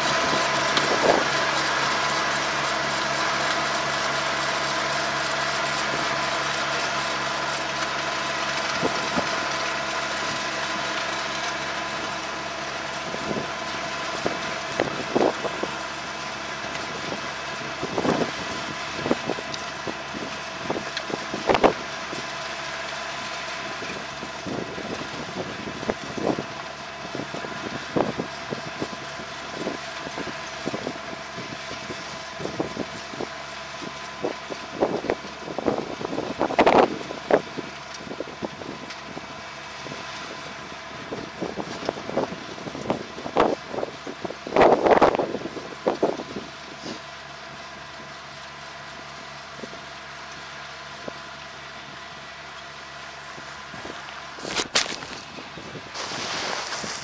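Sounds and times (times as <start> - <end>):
tractor diesel engine under load: 0.0 - 57.0
sharp clicks and crackles: 19.4 - 19.8, 20.8 - 22.2, 54.0 - 55.4.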